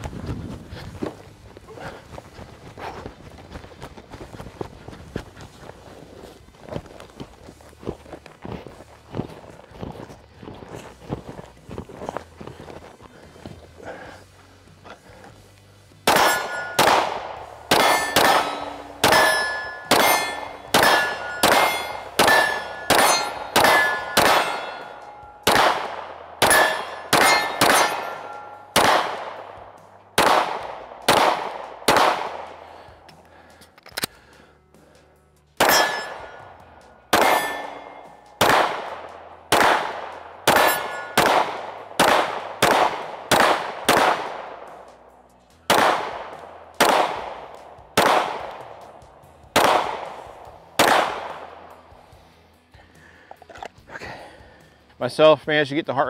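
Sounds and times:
metallic clang of steel targets: 0:16.0 - 0:29.5, 0:35.6 - 0:44.0
pistol shots: 0:16.0 - 0:32.6, 0:35.6 - 0:36.4, 0:37.1 - 0:44.9, 0:45.6 - 0:51.8.

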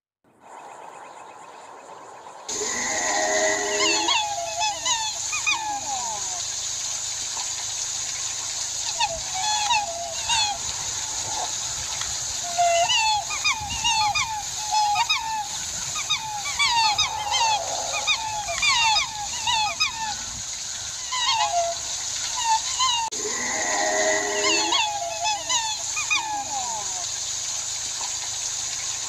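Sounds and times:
steady high hiss: 0:00.5 - 0:29.0
waterfowl honking: 0:02.5 - 0:06.3, 0:12.5 - 0:20.1, 0:21.2 - 0:27.0.

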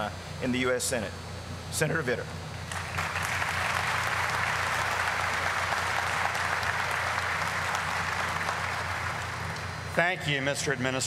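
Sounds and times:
audience applauding: 0:02.7 - 0:09.8.

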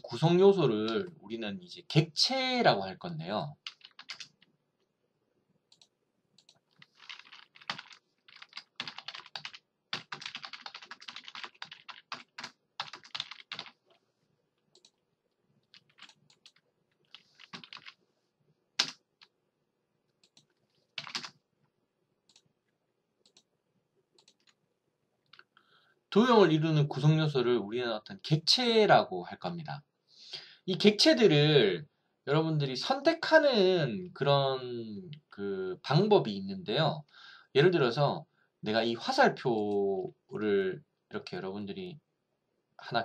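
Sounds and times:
computer keyboard typing: 0:03.6 - 0:04.4, 0:05.7 - 0:13.8, 0:15.6 - 0:18.0, 0:18.8 - 0:19.3, 0:20.2 - 0:21.3, 0:24.2 - 0:24.6.

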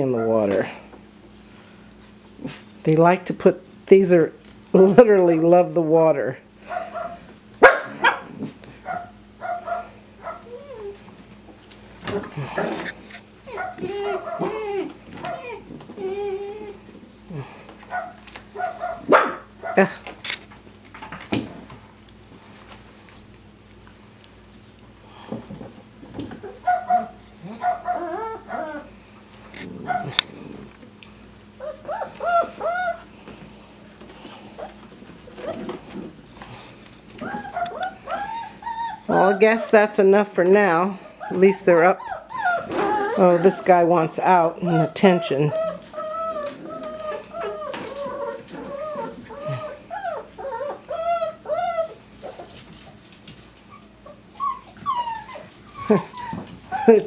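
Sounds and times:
puppies yipping: 0:12.5 - 0:16.8, 0:26.4 - 0:28.9, 0:31.6 - 0:33.1, 0:37.2 - 0:39.9, 0:41.1 - 0:44.0, 0:44.6 - 0:52.7, 0:53.3 - 0:57.0.

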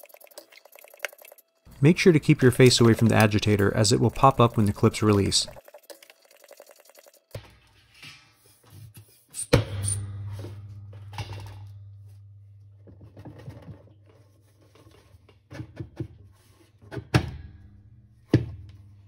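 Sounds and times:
low ringing: 0:09.6 - 0:13.2.

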